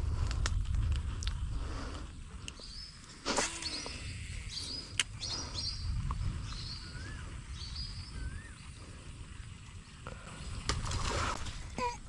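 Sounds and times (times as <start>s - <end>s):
steady low rumble: 0.0s - 12.0s
birds chirping: 2.0s - 10.7s.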